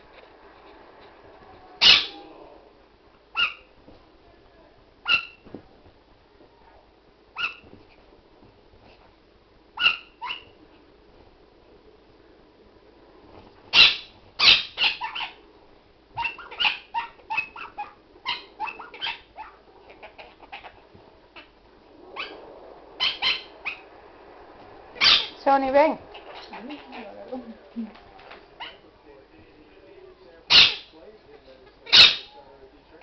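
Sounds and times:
dog yapping: 0:01.8 - 0:02.3, 0:03.3 - 0:03.7, 0:05.0 - 0:05.5, 0:07.4 - 0:07.7, 0:09.8 - 0:10.6, 0:13.7 - 0:15.4, 0:16.2 - 0:20.8, 0:22.2 - 0:22.4, 0:23.0 - 0:23.9, 0:25.0 - 0:25.4, 0:28.6 - 0:28.8, 0:30.5 - 0:30.9, 0:31.9 - 0:32.3
parrot squawking: 0:01.8 - 0:02.3, 0:03.4 - 0:03.7, 0:05.0 - 0:05.4, 0:09.8 - 0:10.6, 0:13.7 - 0:15.4, 0:16.2 - 0:20.8, 0:22.2 - 0:22.4, 0:23.0 - 0:23.8, 0:25.0 - 0:25.4, 0:26.1 - 0:27.2, 0:30.5 - 0:30.9, 0:31.8 - 0:32.4.

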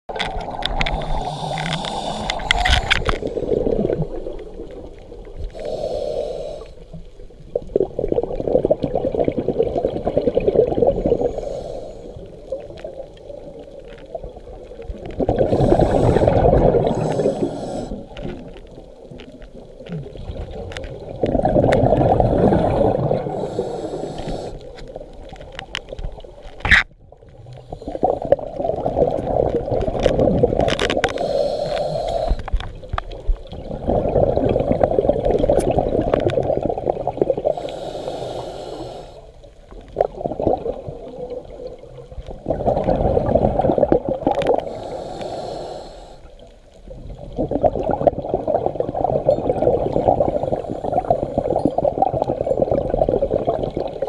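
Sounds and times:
bubbles rushing on exhale: 0:00.1 - 0:05.7, 0:07.5 - 0:11.5, 0:12.5 - 0:18.6, 0:19.5 - 0:23.7, 0:27.2 - 0:37.7, 0:39.7 - 0:44.8, 0:46.9 - 0:54.0
regulator hissing on inhale: 0:00.8 - 0:03.5, 0:05.4 - 0:07.0, 0:11.2 - 0:12.5, 0:15.5 - 0:18.2, 0:23.3 - 0:24.8, 0:31.0 - 0:32.6, 0:37.4 - 0:39.4, 0:44.5 - 0:46.4.

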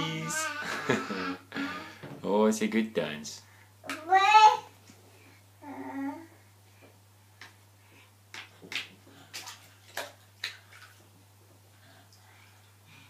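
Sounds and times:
hands slapping bathwater: 0:07.4 - 0:07.6, 0:08.3 - 0:11.2.

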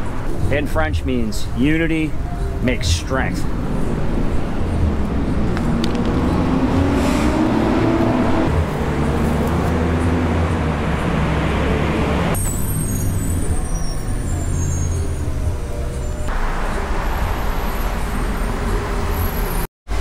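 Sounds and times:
vehicle engines passing: 0:00.0 - 0:19.7
faint high whistling tones: 0:12.4 - 0:19.6.

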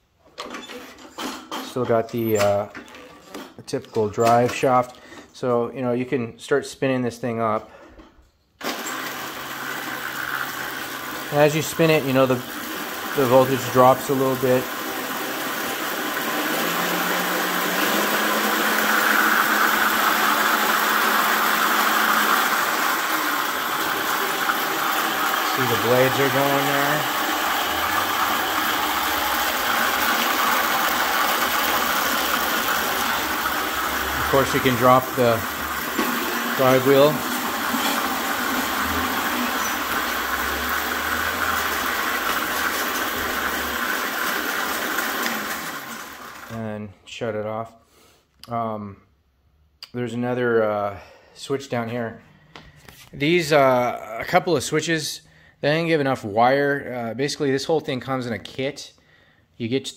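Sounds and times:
reel blades whirring: 0:08.6 - 0:46.5
electric motor hum: 0:08.7 - 0:46.5.

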